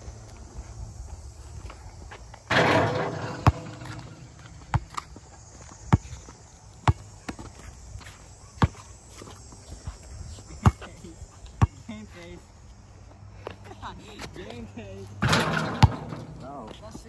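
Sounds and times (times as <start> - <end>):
basketball bouncing on hard court: 2.5 - 5.0.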